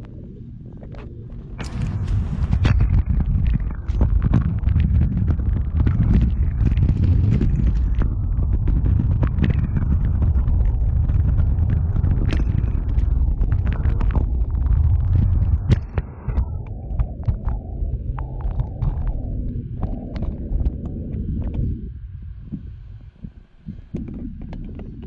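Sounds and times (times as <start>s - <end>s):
scooter wheels rumbling on asphalt: 1.6s - 17.4s.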